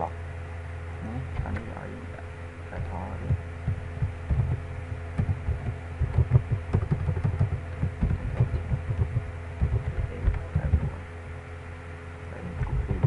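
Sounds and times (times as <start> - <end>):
electrical hum: 0.0 - 13.0
keyboard typing: 3.2 - 11.0.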